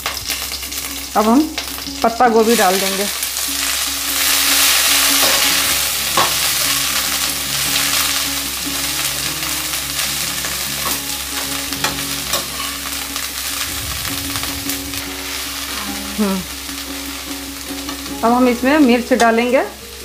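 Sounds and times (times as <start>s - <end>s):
cabbage sizzling in hot oil: 0.0s - 20.0s.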